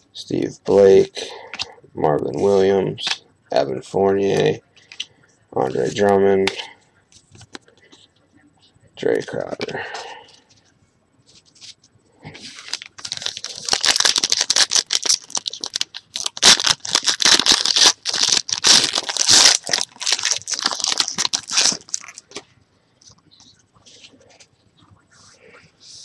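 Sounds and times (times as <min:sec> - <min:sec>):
foil wrapper crinkling and tearing: 0:12.4 - 0:22.4.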